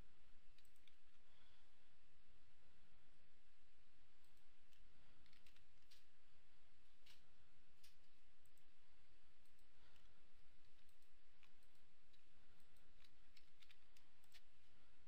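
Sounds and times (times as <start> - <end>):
mouse and keyboard clicks: 4.3 - 6.1, 9.4 - 14.7.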